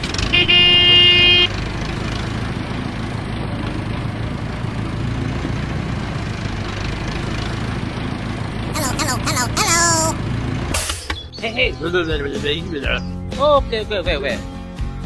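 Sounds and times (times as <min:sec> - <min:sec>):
vehicle horn honking: 0:00.4 - 0:01.5.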